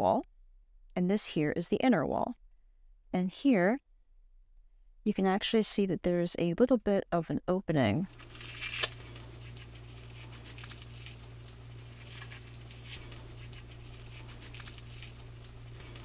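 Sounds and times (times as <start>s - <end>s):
steady low hum: 8.0s - 16.0s
fingers rustling cocoon silk: 8.1s - 16.0s.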